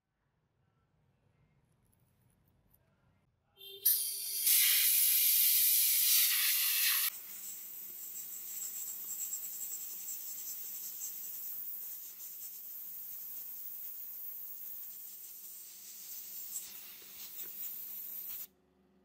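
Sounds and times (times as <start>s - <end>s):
sandblasting gun hissing: 3.8s - 18.5s.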